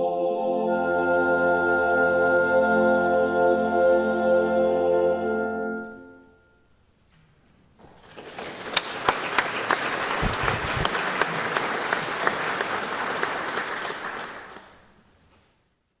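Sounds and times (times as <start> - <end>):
audience applauding: 8.0 - 14.9.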